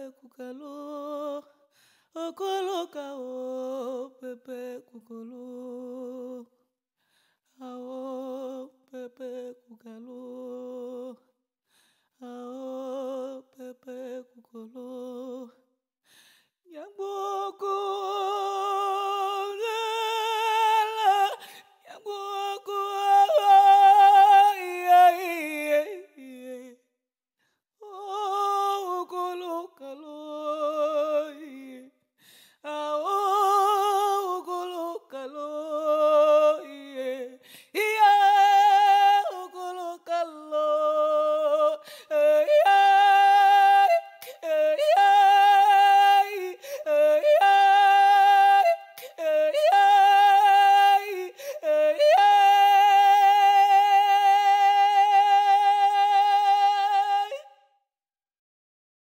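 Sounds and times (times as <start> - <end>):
woman singing unaccompanied: 0.0 - 1.6, 2.2 - 6.5, 16.7 - 26.8, 27.8 - 31.9, 32.6 - 57.6.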